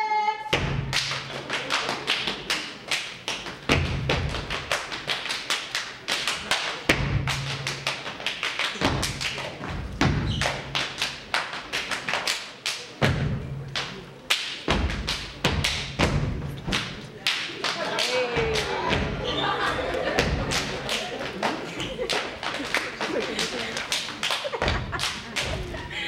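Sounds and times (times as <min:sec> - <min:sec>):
hand claps: 0:00.9 - 0:09.5, 0:10.4 - 0:13.0, 0:13.8 - 0:16.1, 0:20.2 - 0:25.8.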